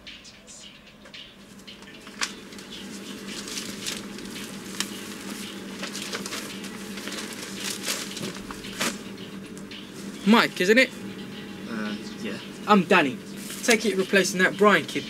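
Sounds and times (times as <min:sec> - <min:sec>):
steady low hum: 0:00.0 - 0:15.0
paper rustling: 0:01.8 - 0:09.0, 0:13.4 - 0:14.0.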